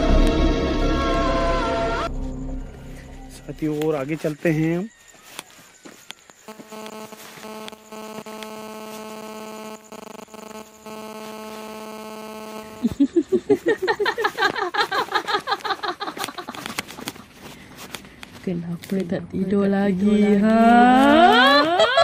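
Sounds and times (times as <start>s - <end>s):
pitched droning hum: 6.5s - 13.5s.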